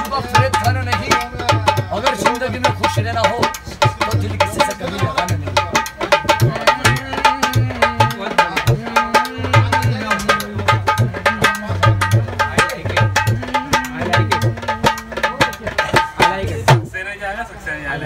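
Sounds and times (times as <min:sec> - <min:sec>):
hand drum fast rhythm: 0:00.0 - 0:17.0.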